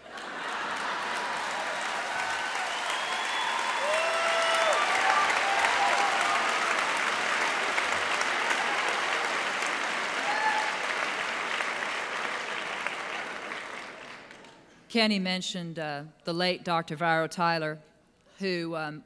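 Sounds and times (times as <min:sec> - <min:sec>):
audience applauding: 0:00.0 - 0:14.7.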